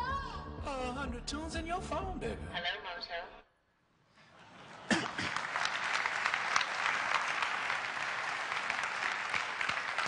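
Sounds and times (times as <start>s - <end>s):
large audience applauding: 4.5s - 10.0s.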